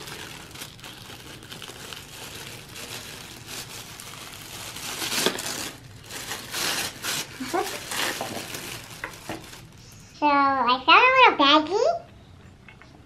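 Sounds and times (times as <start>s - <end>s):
tissue paper rustling: 0.0s - 10.1s.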